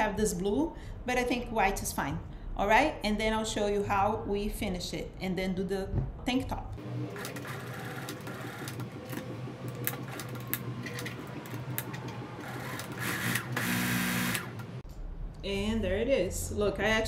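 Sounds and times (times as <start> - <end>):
sewing machine motor hum: 6.8 - 14.8.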